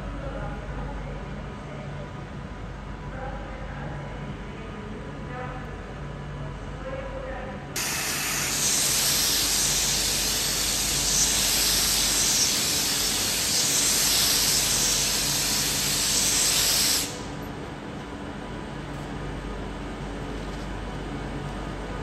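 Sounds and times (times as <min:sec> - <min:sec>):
train air hiss: 0:07.8 - 0:17.6.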